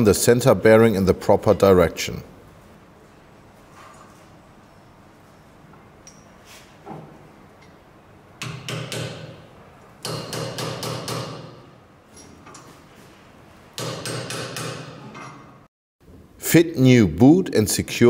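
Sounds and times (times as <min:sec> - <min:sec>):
hammer tapping metal: 0:08.4 - 0:11.8, 0:13.8 - 0:15.6.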